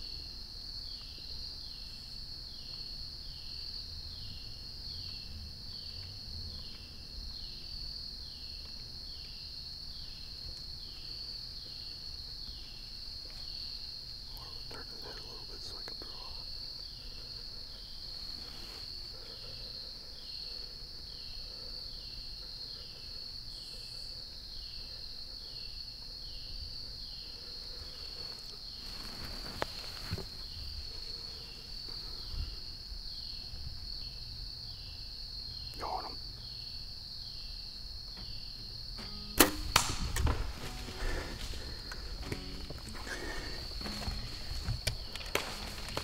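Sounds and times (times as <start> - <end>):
insects droning: 0.0 - 46.0
bow shot crack: 39.0 - 43.0
knocks and rustles in leaf litter: 43.9 - 46.0.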